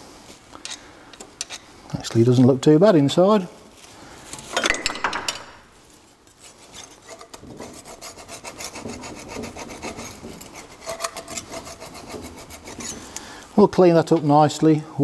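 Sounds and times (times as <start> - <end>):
abrasive pad scrubbing metal: 7.4 - 13.0.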